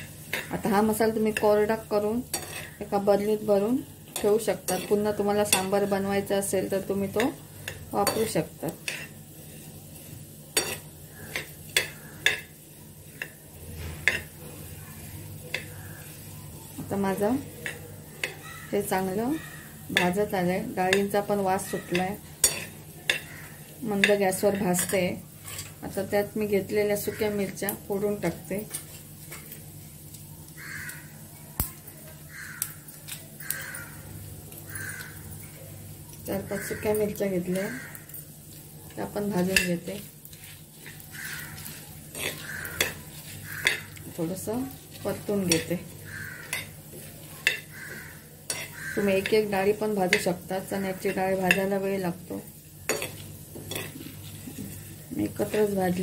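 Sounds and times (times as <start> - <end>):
seeds rattling on metal: 0.0 - 56.0
spatula scraping metal pan: 2.3 - 2.8
crow cawing: 18.3 - 19.9, 23.2 - 23.7, 30.6 - 31.2, 32.2 - 35.3, 36.4 - 38.1, 41.1 - 44.0, 45.9 - 46.8, 47.5 - 49.3.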